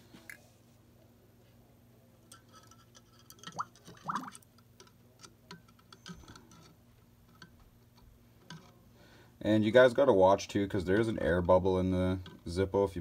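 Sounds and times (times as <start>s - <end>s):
faint steady hum: 0.0s - 13.0s
metal clicking against glass jar: 2.3s - 4.9s.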